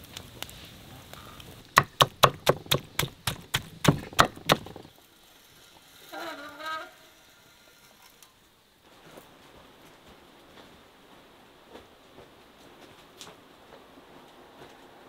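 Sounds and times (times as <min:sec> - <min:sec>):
knife chopping on wooden board: 0:01.8 - 0:04.9.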